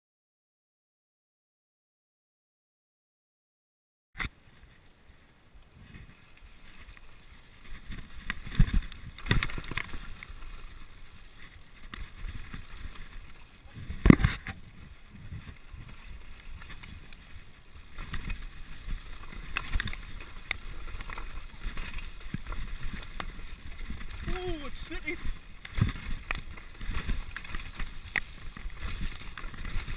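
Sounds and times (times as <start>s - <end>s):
bike tyres rumbling on gravel: 4.2s - 29.9s
bike knocking and rattling: 6.0s - 29.9s.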